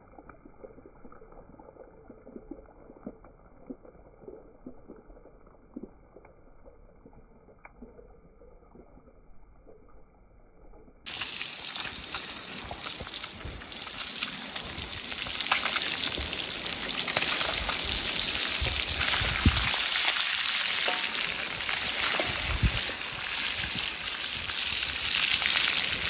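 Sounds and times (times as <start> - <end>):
fish sizzling in hot oil: 11.1 - 26.0.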